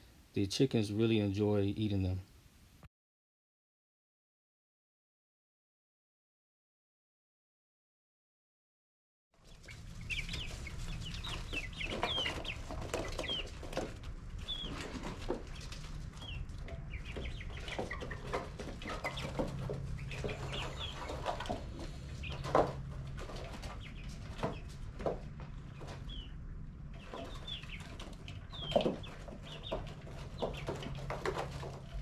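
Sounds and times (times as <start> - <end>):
chicks chirping and clucking: 9.4 - 32.0
steady low hum: 9.6 - 28.6.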